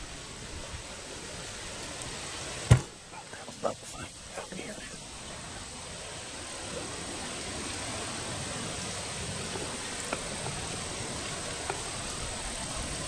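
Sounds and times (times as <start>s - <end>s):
background hiss: 0.0s - 13.0s
faint ticks: 9.5s - 12.2s.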